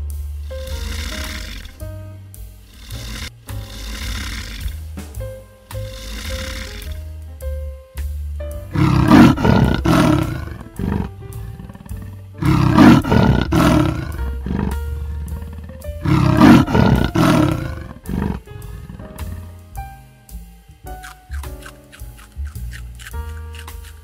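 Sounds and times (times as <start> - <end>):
large animal calling loudly: 8.8 - 11.1, 11.9 - 14.8, 16.0 - 18.4.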